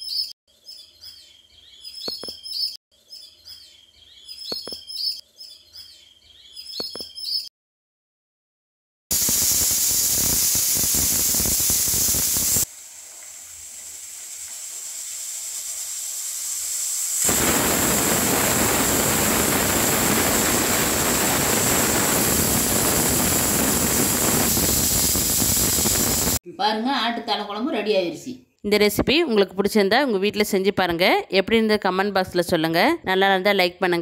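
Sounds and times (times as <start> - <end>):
pressure cooker whistling: 9.1 - 12.7, 14.3 - 26.4.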